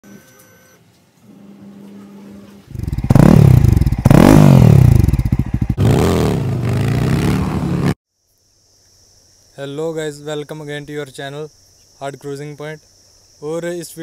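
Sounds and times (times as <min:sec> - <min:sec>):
motorcycle engine revving: 0:02.7 - 0:08.0.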